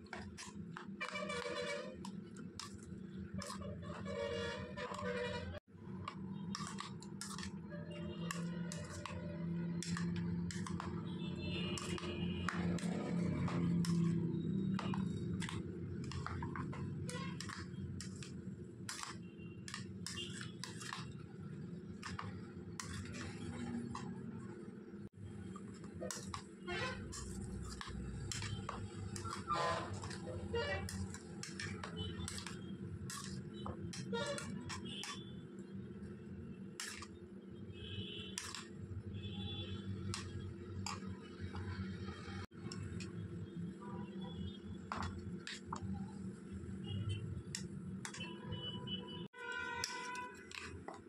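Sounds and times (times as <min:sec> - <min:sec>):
soft wet stirring: 0:00.0 - 0:43.4, 0:44.7 - 0:48.7, 0:49.4 - 0:51.0
metal spoon clinking bowl: 0:26.0 - 0:35.2.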